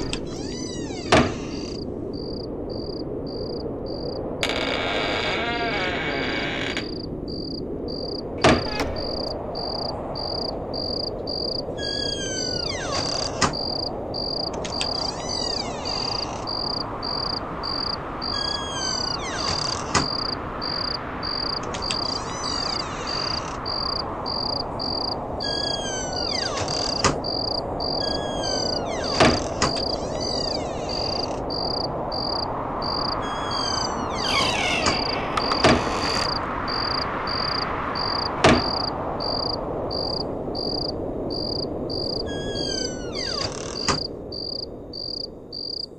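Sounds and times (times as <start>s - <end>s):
crickets chirping: 0.0s - 45.9s
short falling calls: 25.4s - 27.1s.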